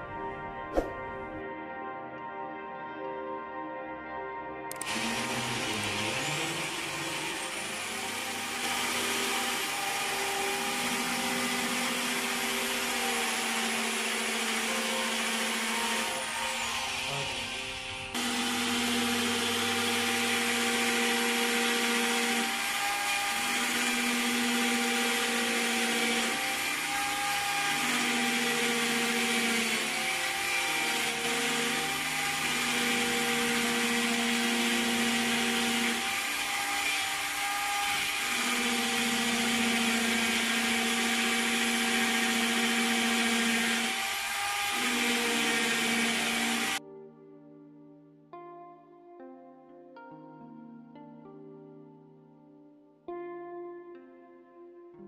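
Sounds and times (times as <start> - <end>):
electric drill boring into wood: 4.7 - 46.8.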